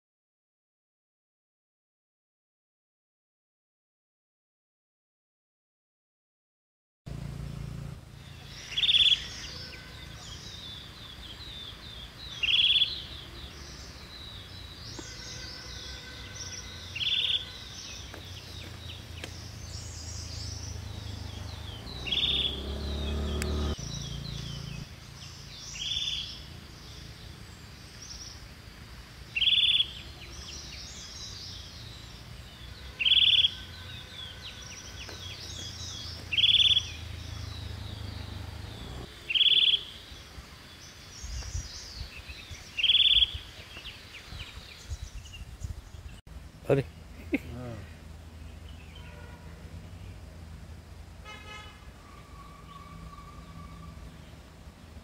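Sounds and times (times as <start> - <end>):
birds chirping and chattering: 7.3 - 50.8.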